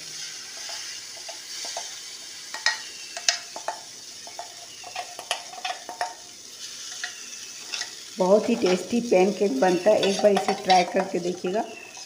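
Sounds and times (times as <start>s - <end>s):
batter sizzling on a hot pan: 0.0s - 12.0s
metal spoon scraping steel bowl: 9.7s - 12.0s.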